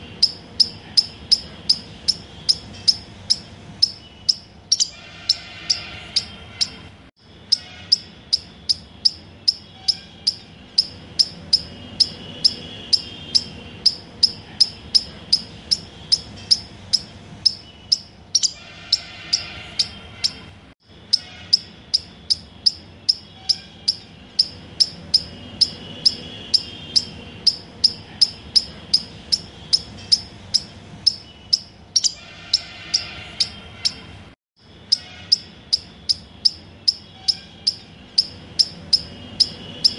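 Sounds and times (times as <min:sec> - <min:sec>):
bird song: 0:00.0 - 0:39.9
rapid high-pitched chirping: 0:00.0 - 0:39.9.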